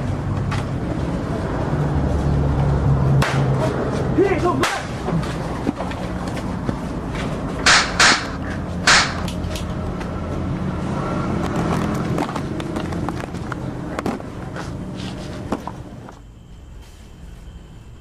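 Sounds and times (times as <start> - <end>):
knocks and scuffling: 3.3 - 7.7, 11.4 - 17.6.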